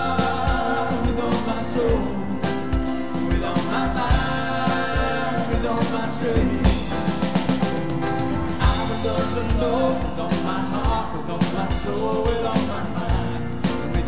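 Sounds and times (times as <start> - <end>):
drum beat: 0.0 - 14.0
guitar: 0.0 - 14.0
piano: 0.0 - 14.0
worship band playing: 0.0 - 14.0.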